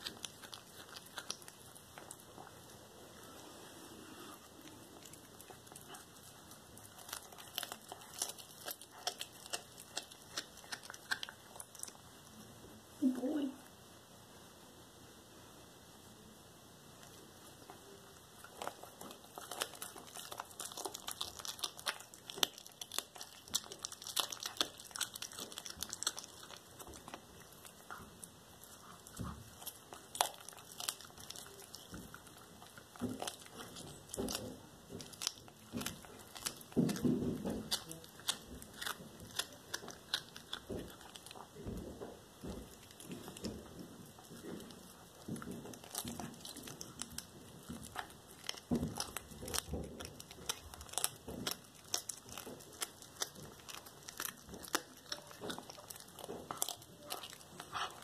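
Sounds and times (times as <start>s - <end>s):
cat crunching bones: 0.0s - 12.5s, 17.0s - 58.0s
teeth clicking: 4.8s - 12.0s, 18.4s - 41.6s.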